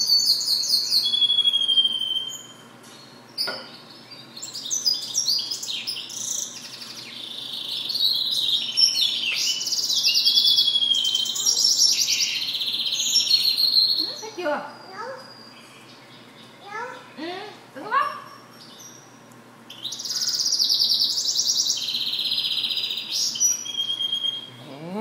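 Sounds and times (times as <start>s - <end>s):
finch singing twittering trills: 0.0s - 16.9s, 17.9s - 24.6s.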